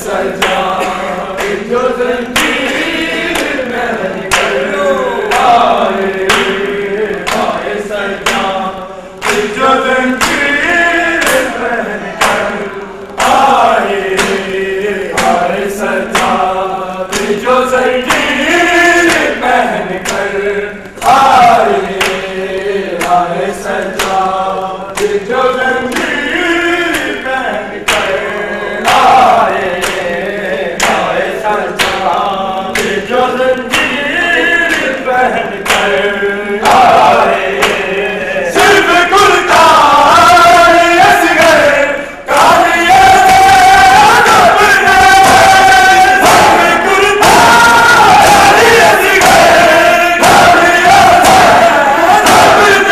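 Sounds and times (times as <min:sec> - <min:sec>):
men chanting a lament: 0:00.0 - 0:52.9
hands slapping chests: 0:02.4 - 0:04.7, 0:05.3 - 0:08.6, 0:09.2 - 0:11.6, 0:20.9 - 0:22.3, 0:23.8 - 0:24.2, 0:27.9 - 0:28.2, 0:35.6 - 0:36.0, 0:36.6 - 0:37.9, 0:45.2 - 0:52.9.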